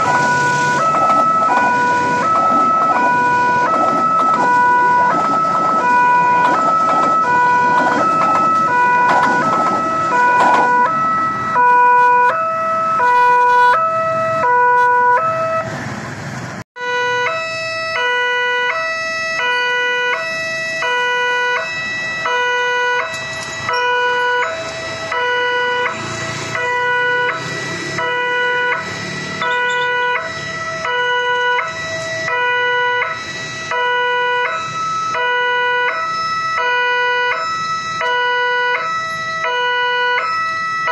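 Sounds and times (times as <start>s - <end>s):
level crossing two-tone alarm: 0.0s - 15.7s, 16.8s - 40.9s
passing train rumble: 0.0s - 16.6s, 20.5s - 36.6s.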